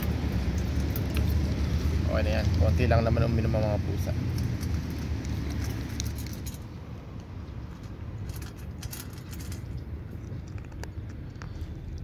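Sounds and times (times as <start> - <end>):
cat crunching dry kibble: 0.0 - 12.0
kibble clinking against metal: 4.3 - 6.8, 7.7 - 11.4.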